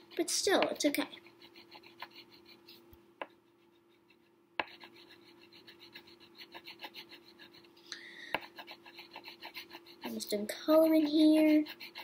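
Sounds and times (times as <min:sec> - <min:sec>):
crayon scribbling on paper: 0:00.0 - 0:07.7, 0:08.4 - 0:12.0.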